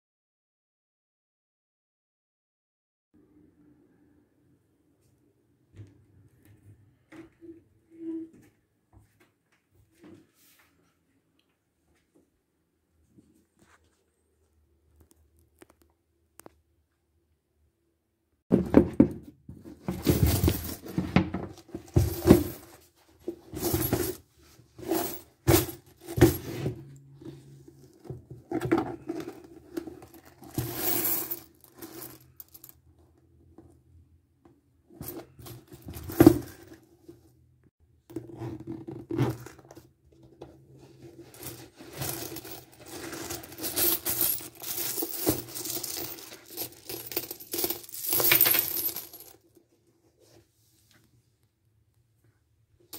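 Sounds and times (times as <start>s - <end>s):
coins clinking and jingling: 30.4s - 32.7s, 41.4s - 49.4s.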